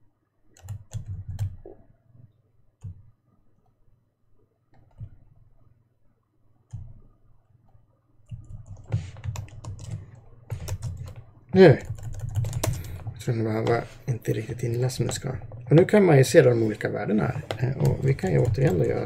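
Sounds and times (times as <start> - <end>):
computer keyboard typing: 0.5 - 1.6, 8.3 - 19.0.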